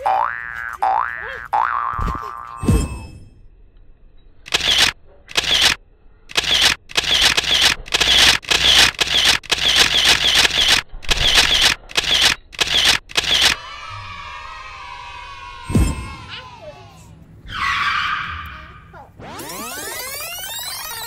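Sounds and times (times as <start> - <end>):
falling tone: 17.4 - 21.0
trampoline springs creaking: 17.4 - 21.0.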